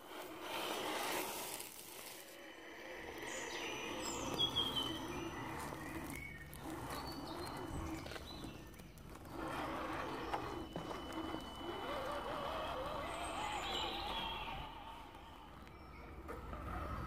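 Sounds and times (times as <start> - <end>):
low steady motor whirr: 2.4 - 17.0
birds calling and singing: 2.7 - 17.0
falling whistle: 10.6 - 15.8.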